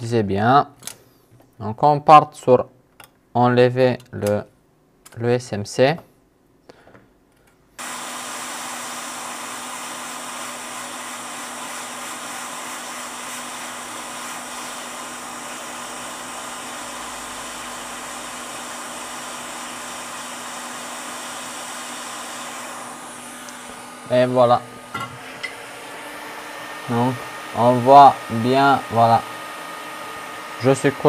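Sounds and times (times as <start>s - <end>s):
hot air station blowing: 7.8s - 31.0s.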